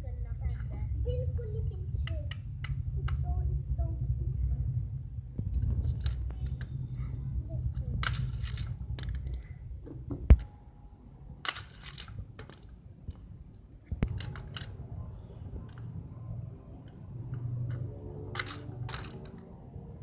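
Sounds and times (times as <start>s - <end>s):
low rumble: 0.0s - 20.0s
toy car rattling over plastic track: 5.8s - 6.7s, 7.8s - 9.5s, 11.4s - 12.7s, 14.1s - 14.8s, 17.7s - 19.5s.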